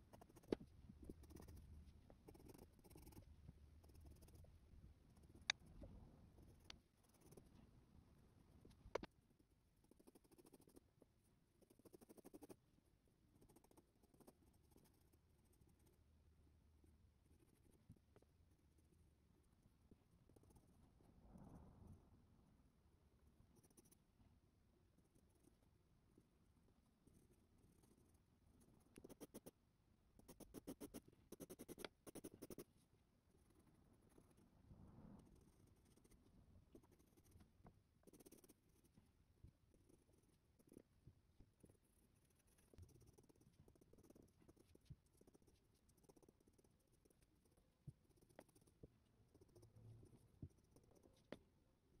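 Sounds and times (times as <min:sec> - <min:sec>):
pencil scratching on paper: 0:00.0 - 0:07.6, 0:09.8 - 0:10.9, 0:11.6 - 0:12.6, 0:28.9 - 0:29.6, 0:30.2 - 0:34.5, 0:35.2 - 0:40.9, 0:41.6 - 0:51.4.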